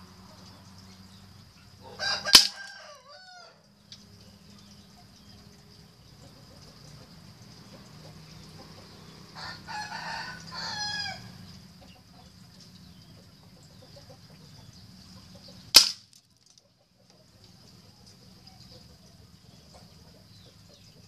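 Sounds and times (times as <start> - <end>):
chicken calling: 1.8 - 3.6
pellet striking wooden target: 2.4 - 2.6, 15.7 - 16.2
air rifle shot: 15.8 - 16.1.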